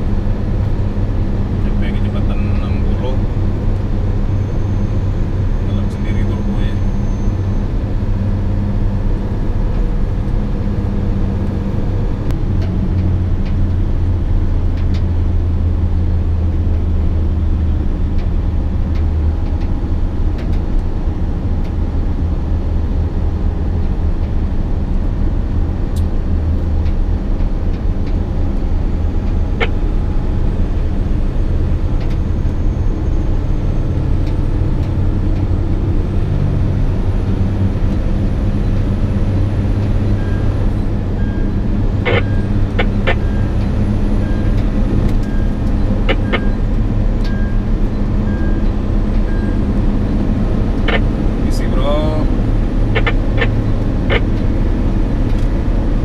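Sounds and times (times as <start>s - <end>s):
truck diesel engine droning: 0.0s - 56.0s
tyre and road noise: 0.0s - 56.0s.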